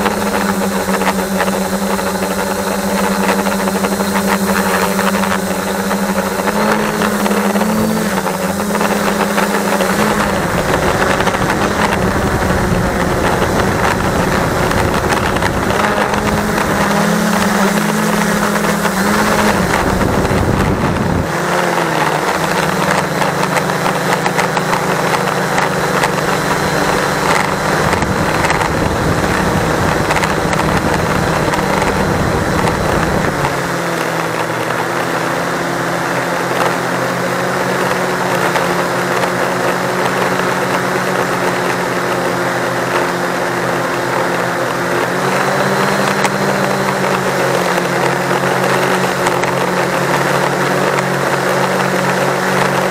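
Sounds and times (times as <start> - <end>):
drone propellers humming: 0.0 - 52.9
wind buffeting microphone: 0.0 - 52.9.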